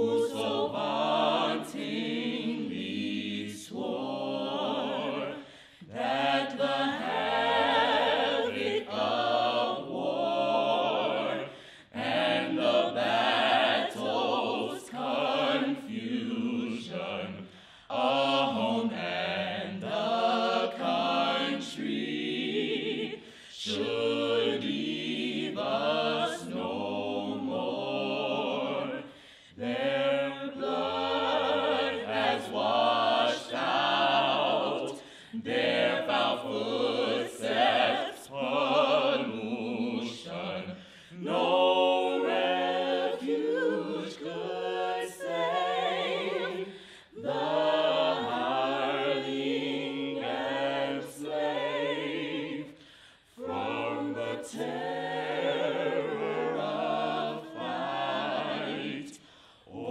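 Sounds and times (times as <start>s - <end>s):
choir singing unaccompanied: 0.0s - 59.9s.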